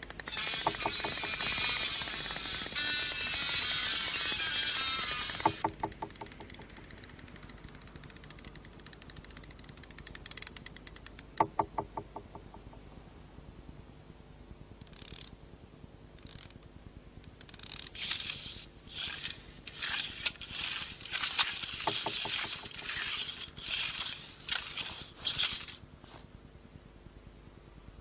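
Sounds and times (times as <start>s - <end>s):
faint steady hum: 0.0s - 28.0s
short rasping scrapes: 18.0s - 25.8s.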